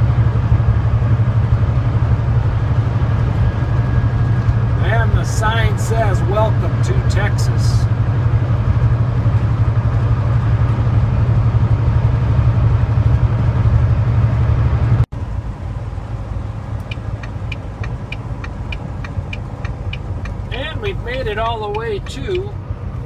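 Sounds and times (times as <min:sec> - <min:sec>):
truck engine and road drone: 0:00.0 - 0:23.0
turn signal clicking: 0:16.7 - 0:22.6.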